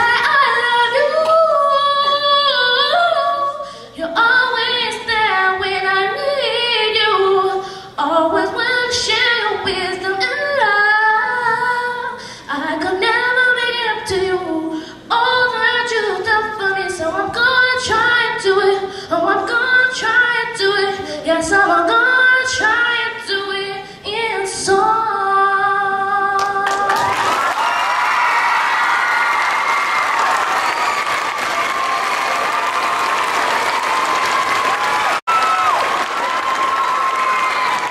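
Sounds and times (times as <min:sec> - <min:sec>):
applause: 0:26.4 - 0:37.9.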